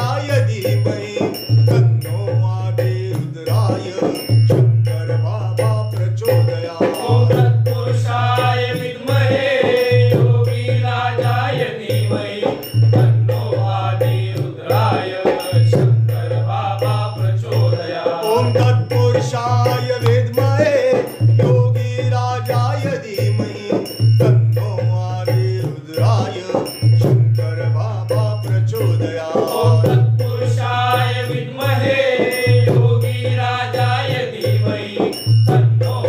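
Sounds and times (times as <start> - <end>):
shaker rattle percussion: 0.0 - 36.0
person chanting: 13.4 - 20.9.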